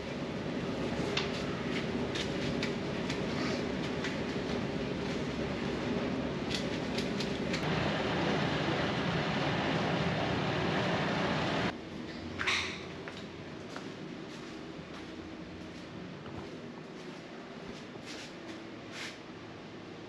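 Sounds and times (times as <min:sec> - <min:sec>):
concrete mixer engine running: 0:07.5 - 0:11.7.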